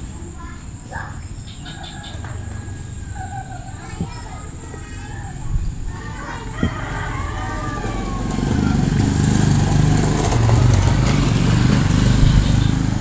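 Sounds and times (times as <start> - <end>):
engine running: 7.0 - 13.0.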